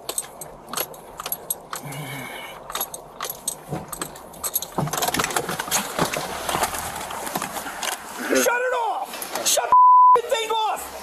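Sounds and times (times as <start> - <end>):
keys and metal gear jangling: 0.0 - 2.0, 2.6 - 5.2.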